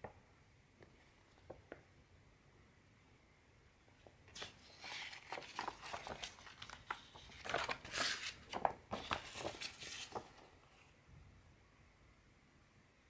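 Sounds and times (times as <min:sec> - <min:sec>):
paper sheets rustling: 0:04.3 - 0:10.8.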